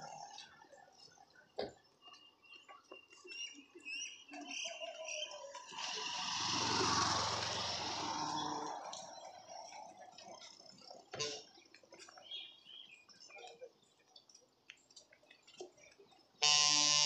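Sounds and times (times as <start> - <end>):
birds chirping: 0.0 - 17.0
motorcycle passing: 5.5 - 11.5.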